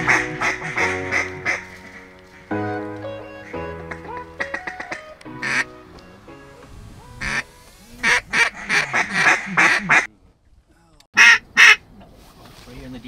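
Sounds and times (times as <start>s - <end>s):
duck call notes: 0.0s - 2.2s, 11.2s - 11.8s
background music held tones: 0.0s - 7.7s.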